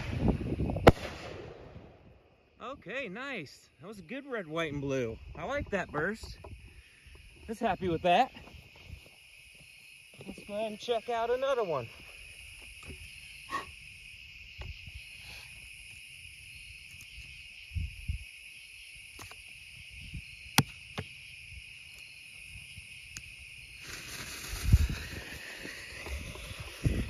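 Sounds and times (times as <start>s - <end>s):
crickets chirring: 0.0s - 27.0s
firework fuse hissing: 23.0s - 27.0s.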